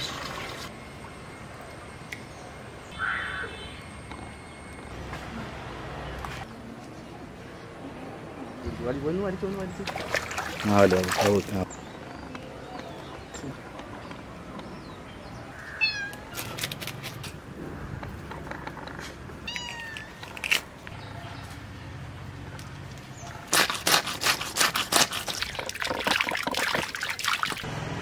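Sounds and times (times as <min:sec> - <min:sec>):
cat meowing: 0:15.7 - 0:16.2, 0:19.4 - 0:20.2.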